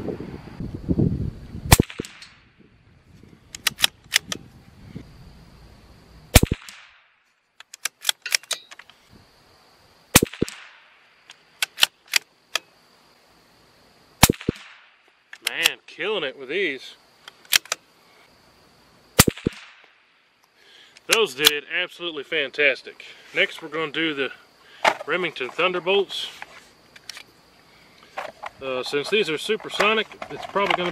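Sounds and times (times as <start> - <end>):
rifle shots with ring: 1.7 - 2.5, 6.3 - 7.1, 10.1 - 10.9, 14.2 - 15.0, 19.2 - 19.9
rifle bolt clicks: 3.5 - 4.4, 7.6 - 8.9, 11.3 - 12.7, 17.3 - 17.8.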